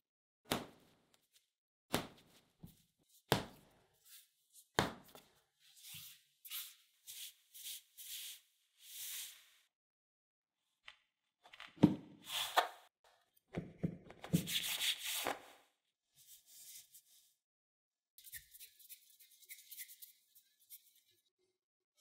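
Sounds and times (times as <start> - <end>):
dough slapped onto board: 3.3 - 3.6, 4.8 - 5.2.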